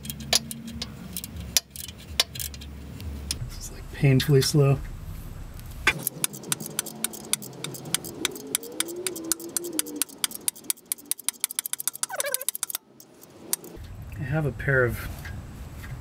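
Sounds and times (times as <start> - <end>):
socket ratchet clicking: 0.0 - 2.8, 5.9 - 13.8.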